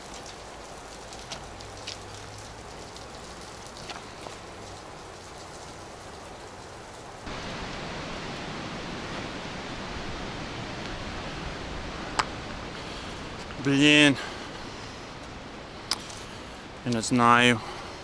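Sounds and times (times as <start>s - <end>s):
light ticks: 15.2s - 16.2s.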